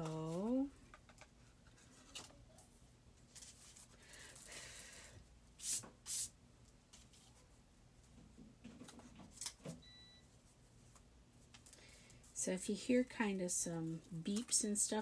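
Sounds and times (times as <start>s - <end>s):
paper and card rustling: 0.0s - 2.4s, 3.2s - 4.6s.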